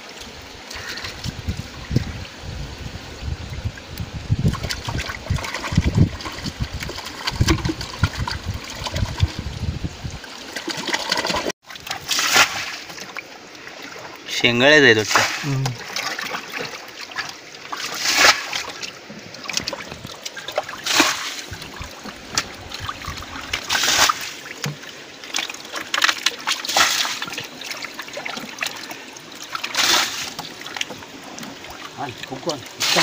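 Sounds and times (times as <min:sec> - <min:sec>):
muddy water splashing: 0:03.4 - 0:33.0
faint water trickle: 0:27.2 - 0:29.7, 0:30.4 - 0:32.8.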